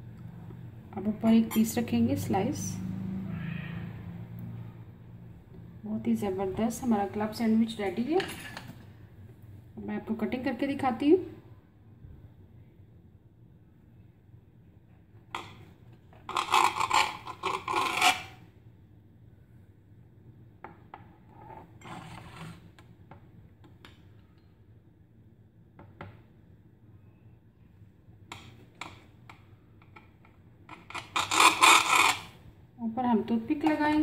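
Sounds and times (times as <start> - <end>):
knife scraping glass board: 16.2 - 18.4, 21.4 - 22.7, 30.7 - 32.4
knife sawing through bread: 16.3 - 18.4, 31.0 - 32.3.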